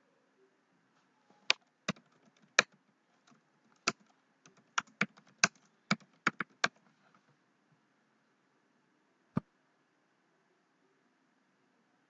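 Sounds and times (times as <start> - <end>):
computer keyboard typing: 1.9 - 6.8.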